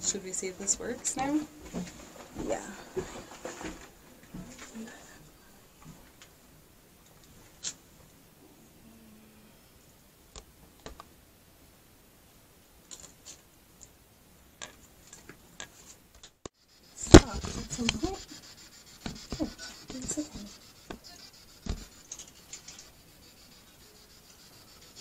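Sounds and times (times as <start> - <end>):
rustling and bumping: 0.8 - 5.2, 16.9 - 23.0.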